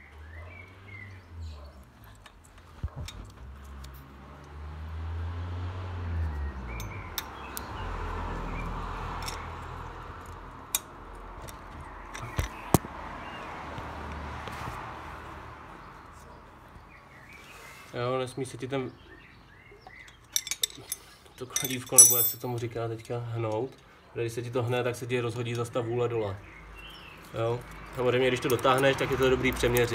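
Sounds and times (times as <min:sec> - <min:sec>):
metallic clicks of tools: 0:20.0 - 0:22.4.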